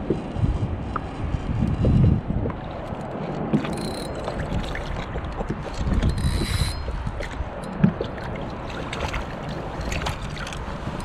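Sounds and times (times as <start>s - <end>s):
wind on microphone: 0.0s - 11.0s
water lapping against kayak: 2.0s - 11.0s
fishing reel winding: 3.7s - 4.2s, 6.1s - 6.8s.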